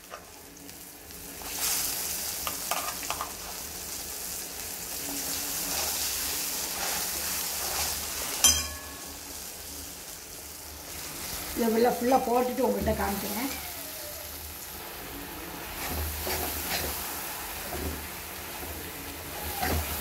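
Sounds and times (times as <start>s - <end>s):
food sizzling in a pan: 0.0s - 20.0s.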